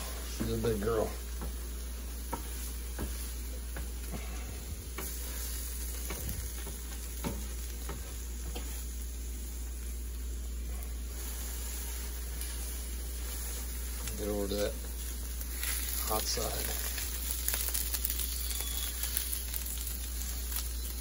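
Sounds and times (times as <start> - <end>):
eggs and sausages sizzling: 0.0 - 21.0
spatula scraping and tapping griddle: 0.3 - 8.9.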